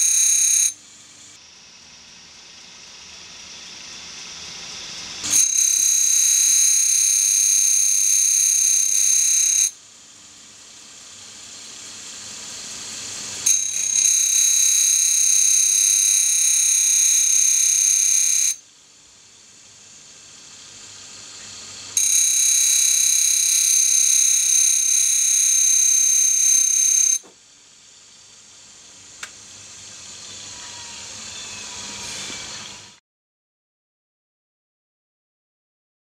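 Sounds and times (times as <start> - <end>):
grinding wheel high-pitched whine: 0.0 - 0.8, 2.7 - 9.8, 11.6 - 18.6, 21.4 - 27.3, 30.2 - 32.7.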